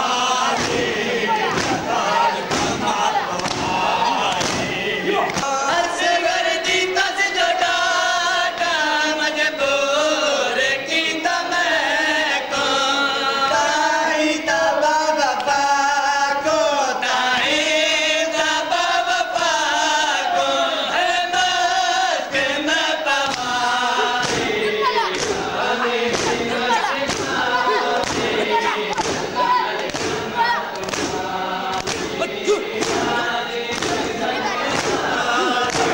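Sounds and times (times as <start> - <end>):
men chanting a lament: 0.0 - 35.9
chest-beating thuds: 0.4 - 5.6, 23.2 - 35.9.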